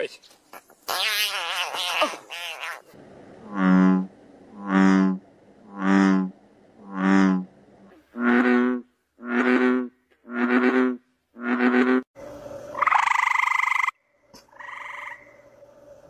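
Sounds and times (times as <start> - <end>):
bullfrog deep croaks: 2.7 - 12.0, 12.7 - 15.4
frogs croaking: 3.4 - 7.5, 12.7 - 15.6.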